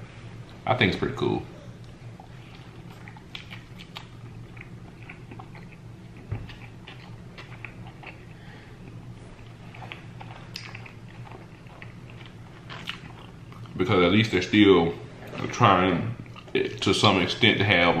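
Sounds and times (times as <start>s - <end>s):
steady low hum: 0.0s - 18.0s
wet chewing mouth clicks: 1.8s - 8.3s, 8.9s - 13.8s.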